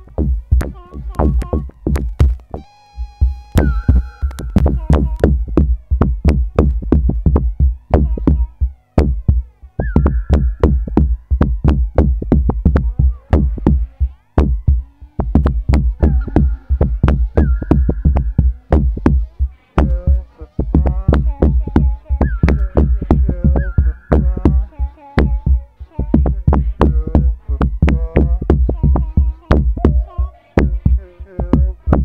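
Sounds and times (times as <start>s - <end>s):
held synthesizer note: 0.0s - 28.6s
drum machine beat: 0.0s - 32.0s
heavy bass: 0.0s - 32.0s
synth line of sliding notes: 2.5s - 5.2s, 15.9s - 19.5s.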